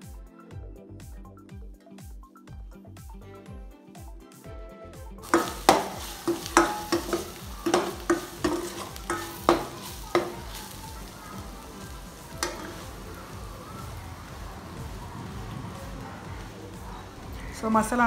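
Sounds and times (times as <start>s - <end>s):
frying sizzle: 5.2s - 18.0s
spoon clanking on steel pan: 5.3s - 13.1s.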